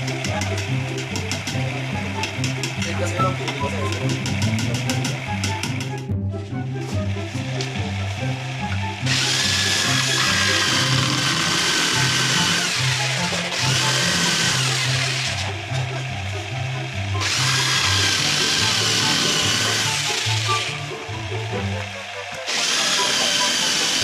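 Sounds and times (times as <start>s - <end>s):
jigsaw cutting wood: 0.0s - 6.0s, 7.1s - 24.0s
background music with beat: 0.0s - 24.0s.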